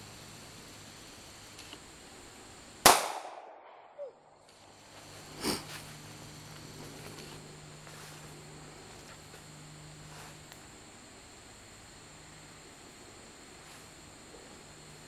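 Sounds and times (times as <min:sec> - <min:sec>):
pistol shot with echo: 0:02.8 - 0:04.0
faint sharp crack: 0:02.8 - 0:04.6.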